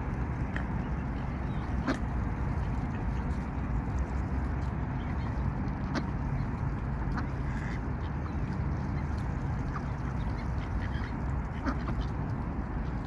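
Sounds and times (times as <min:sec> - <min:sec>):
low background rumble: 0:00.0 - 0:13.0
ducks quacking: 0:01.5 - 0:03.3, 0:05.0 - 0:13.0.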